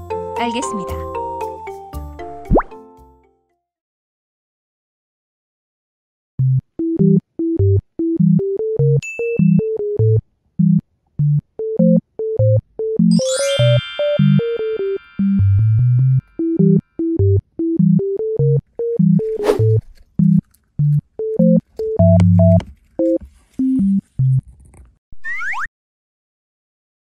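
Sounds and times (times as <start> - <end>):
bouncy synthesizer music: 6.8 - 19.2
rising glissando of chimes: 13.1 - 16.4
brief swish: 19.2 - 20.0.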